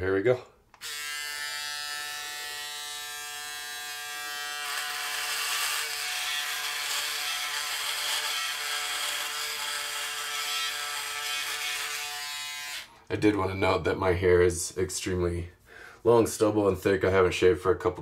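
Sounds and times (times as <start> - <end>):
electric shaver buzzing: 0.8 - 12.9
stubble being shaved: 0.8 - 12.9.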